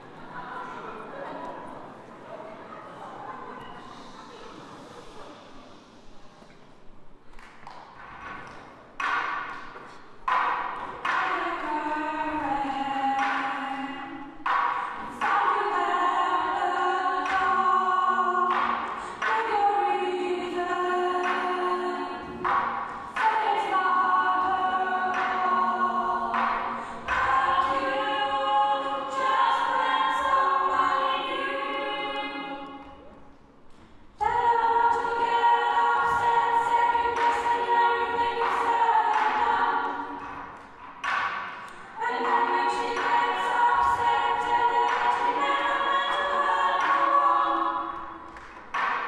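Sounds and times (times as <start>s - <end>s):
choir singing a cappella: 10.2s - 33.3s, 34.2s - 49.0s.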